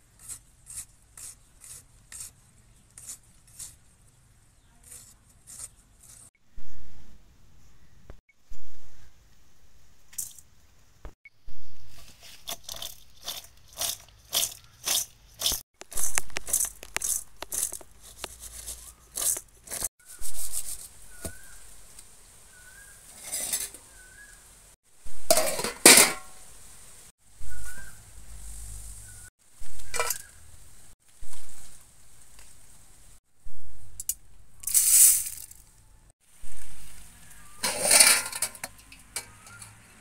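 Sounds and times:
cucumber scraping in steel bowl: 11.9s - 21.4s, 23.1s - 23.8s, 29.6s - 30.3s, 37.6s - 39.8s
steel dishes clattering: 25.3s - 26.3s, 37.6s - 39.8s.

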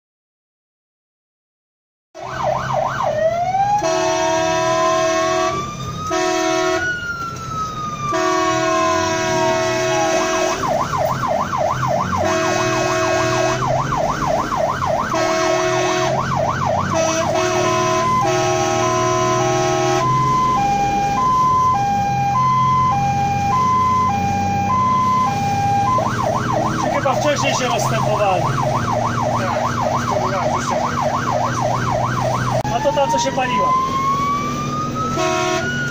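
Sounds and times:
fire engine siren: 2.2s - 35.9s
truck engine running low: 2.3s - 35.9s
fire truck horn blasts: 3.7s - 7.0s, 8.0s - 10.8s, 12.1s - 13.8s, 15.1s - 16.3s, 16.9s - 20.8s, 35.0s - 35.9s.

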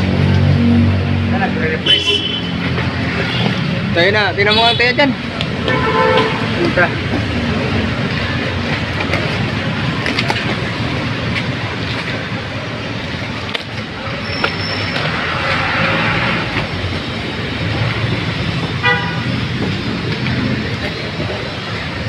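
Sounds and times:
street traffic: 0.0s - 22.0s
motor vehicle engine rumble: 5.0s - 22.0s.

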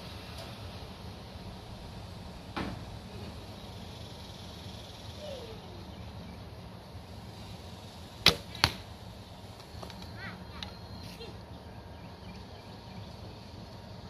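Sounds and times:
arrow striking target: 8.2s - 8.8s.

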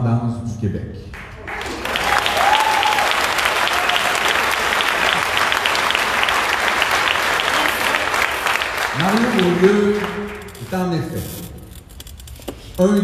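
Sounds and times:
crowd applauding: 1.1s - 10.9s.

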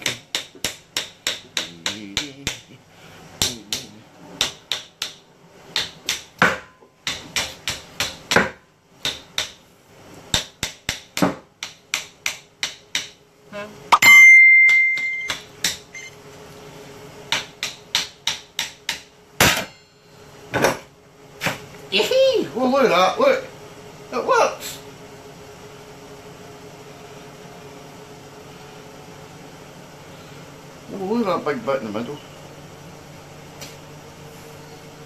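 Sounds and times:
high ringing tone: 13.5s - 16.2s
hammer knocking on metal slicer: 14.0s - 15.8s.

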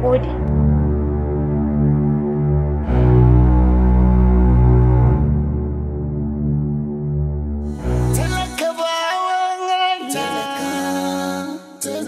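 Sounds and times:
dramatic sustained low music: 0.0s - 8.6s.

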